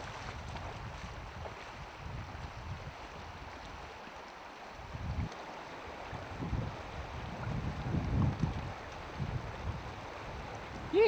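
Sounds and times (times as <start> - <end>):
wind buffeting microphone: 0.0 - 3.9, 4.8 - 11.0
river running over stones: 0.0 - 11.0.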